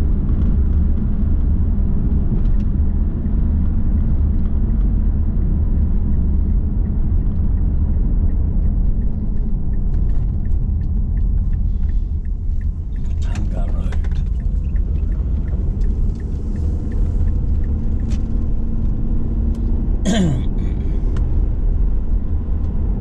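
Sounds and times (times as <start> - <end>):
car tyre and engine rumble: 0.0 - 23.0
turn indicator ticking: 6.8 - 19.8.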